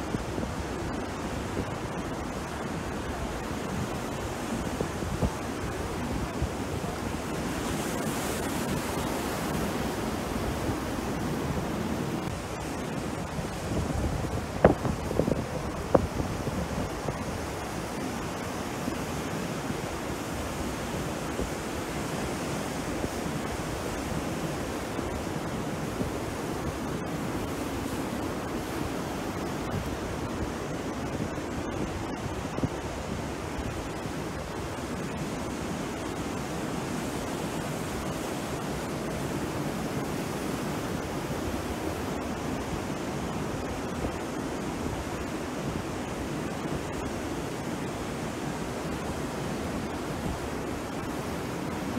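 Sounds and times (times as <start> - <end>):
surf breaking on a beach: 0.0 - 51.9
wind rumbling on microphone: 0.0 - 51.9.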